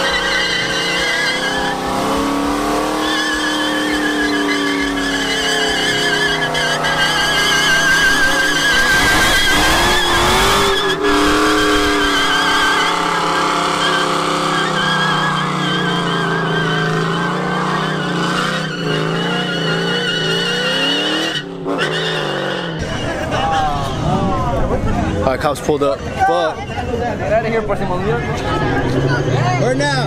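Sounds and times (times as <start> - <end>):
engine at high revs: 0.0 - 22.9, 27.9 - 30.0
tyres screeching: 0.0 - 24.6.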